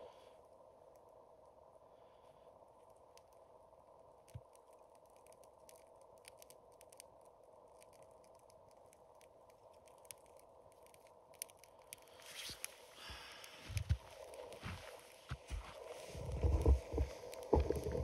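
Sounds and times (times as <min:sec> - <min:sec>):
kindling crackling and ticking: 0:00.0 - 0:18.0
rustle of movement: 0:12.1 - 0:18.0.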